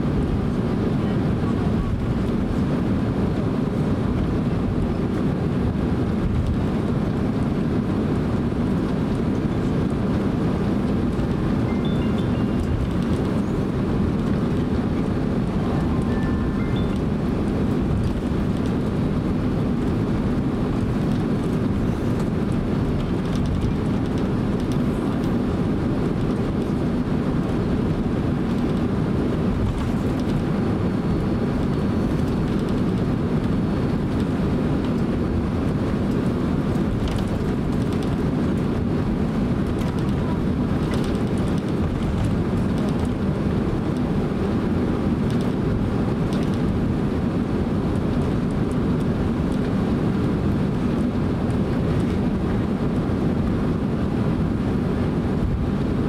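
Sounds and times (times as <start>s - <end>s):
jet engines low rumble: 0.0s - 56.0s
wheels rolling on taxiway: 0.0s - 56.0s.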